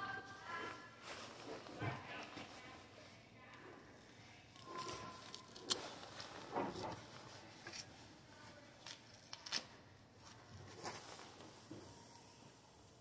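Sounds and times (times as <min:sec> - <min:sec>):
fabric rustling: 0:00.2 - 0:03.2.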